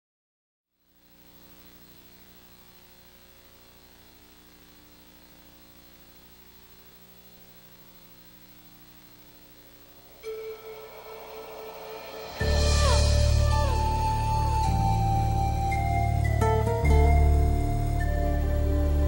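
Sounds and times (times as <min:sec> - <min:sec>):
faint electrical hum with hiss: 0:00.7 - 0:19.0.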